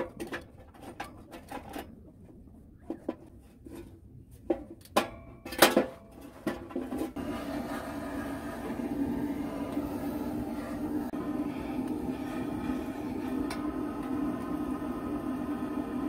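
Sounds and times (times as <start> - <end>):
metal clanks from wood stove: 13.2 - 14.2.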